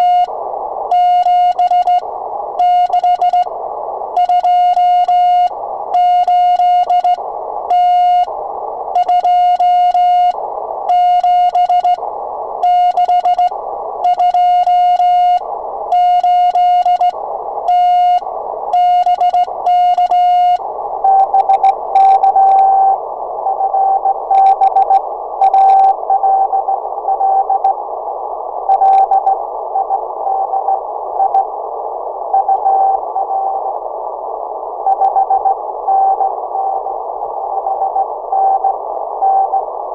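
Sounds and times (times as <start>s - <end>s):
morse code beeps: 0.0s - 0.3s, 0.9s - 2.0s, 2.6s - 3.5s, 4.2s - 8.3s, 9.0s - 12.0s, 12.6s - 27.7s
radio receiver hiss: 0.0s - 39.9s.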